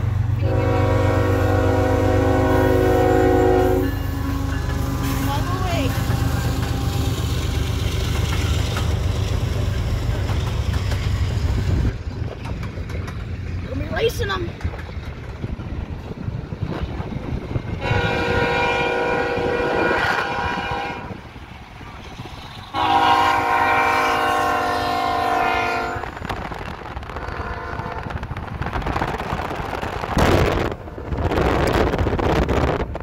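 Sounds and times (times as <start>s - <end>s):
low rumble of passing train: 0.0s - 33.0s
locomotive air horn blasts: 0.4s - 5.3s, 17.8s - 21.2s, 22.7s - 26.1s, 27.2s - 28.1s
rushing wind noise: 1.2s - 23.5s, 24.3s - 33.0s.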